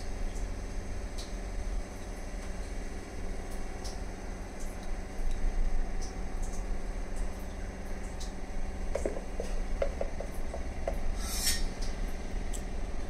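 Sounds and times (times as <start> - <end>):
low mechanical hum: 0.0 - 13.0
brief scraping hiss: 11.2 - 11.7.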